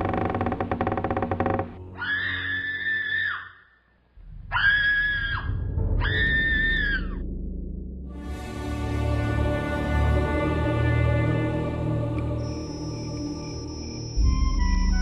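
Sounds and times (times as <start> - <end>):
drawn-out high screams: 1.9 - 3.8, 4.5 - 7.2
low rumble: 4.2 - 9.5.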